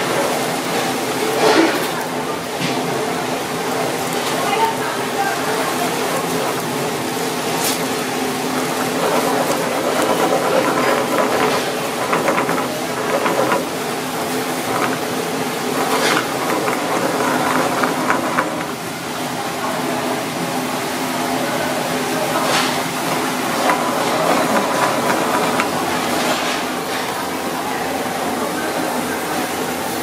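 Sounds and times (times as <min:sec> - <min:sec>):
chopsticks scraping a pan: 0:08.6 - 0:18.7.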